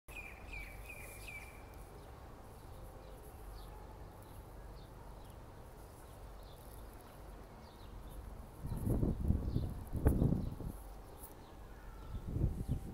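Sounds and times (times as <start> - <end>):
small birds chirping: 0.1 - 12.9.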